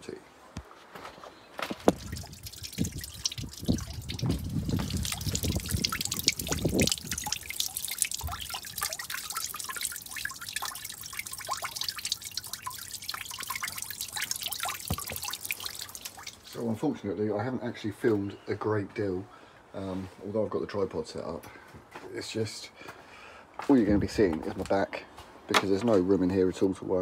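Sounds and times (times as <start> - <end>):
coolant dripping into a bucket: 1.7 - 16.7.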